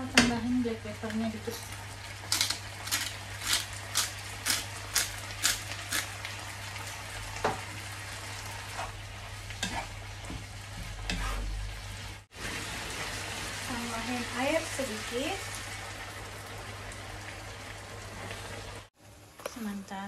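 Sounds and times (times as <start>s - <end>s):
onions and beef sizzling: 0.0s - 18.9s
pepper grinder crunching: 2.2s - 6.3s
wooden spatula scraping pan: 10.8s - 11.6s.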